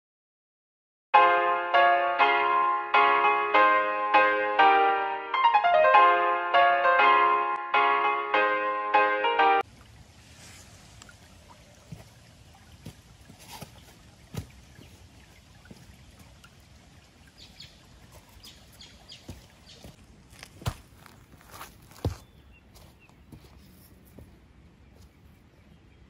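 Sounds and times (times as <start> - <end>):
piano music: 1.2 - 9.7
creek trickling over rocks: 9.6 - 26.0.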